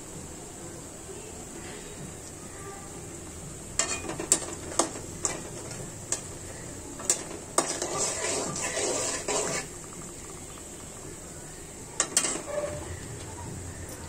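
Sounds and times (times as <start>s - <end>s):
food sizzling in oil: 0.1s - 13.8s
utensil scraping pan: 3.8s - 10.0s, 12.0s - 13.0s.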